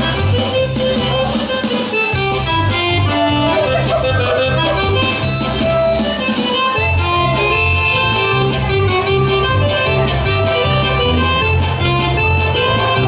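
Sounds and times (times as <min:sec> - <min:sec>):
accordion dance music: 0:00.0 - 0:13.0.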